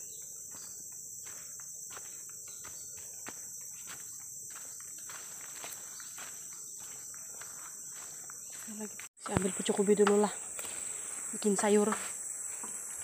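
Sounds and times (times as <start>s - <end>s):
high-pitched insect drone: 0.0s - 13.0s
footsteps on dry leaves: 0.4s - 9.6s.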